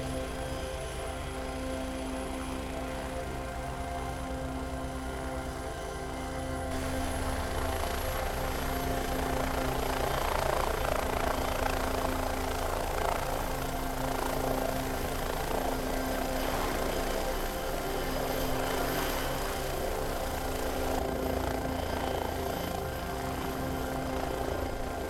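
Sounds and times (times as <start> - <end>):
helicopter turbine whine: 0.0 - 25.0
helicopter rotor chop: 6.7 - 25.0.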